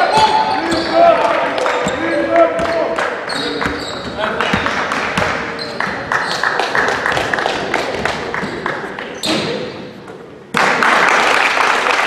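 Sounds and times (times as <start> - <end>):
crowd cheering and clapping: 0.0 - 3.2, 4.3 - 8.9, 10.6 - 12.0
basketball bouncing in a hall: 0.0 - 10.7.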